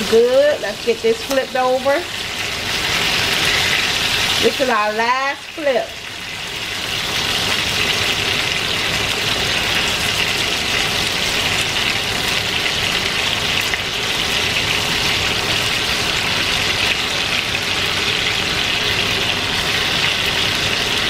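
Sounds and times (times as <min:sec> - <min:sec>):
chicken sizzling in a frying pan: 0:00.0 - 0:21.0.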